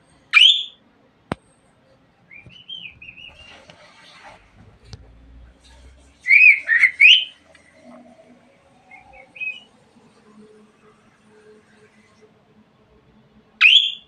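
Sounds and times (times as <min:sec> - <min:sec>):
budgerigar chirping: 0:00.4 - 0:00.8, 0:06.3 - 0:07.3, 0:13.6 - 0:14.0.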